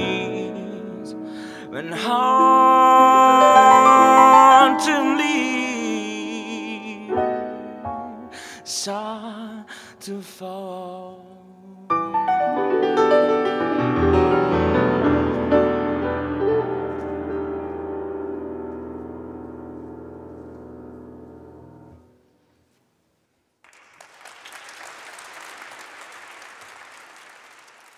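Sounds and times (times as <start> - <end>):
audience applause: 23.7 - 27.9.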